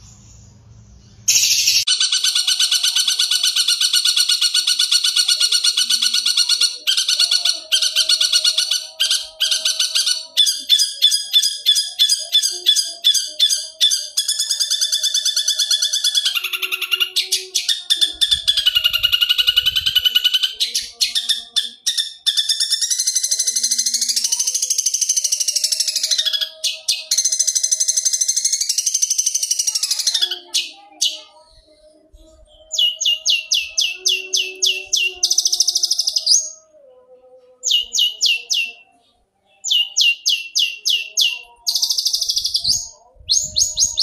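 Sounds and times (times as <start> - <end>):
bird singing fast varied song: 1.1 - 31.3.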